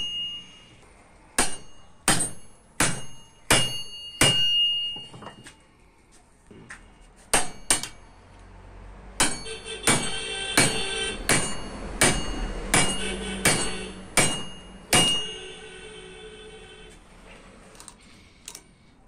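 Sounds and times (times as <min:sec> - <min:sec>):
hammer clanging on steel rod: 0:00.0 - 0:00.6, 0:01.4 - 0:05.6, 0:07.3 - 0:08.1, 0:09.2 - 0:15.6.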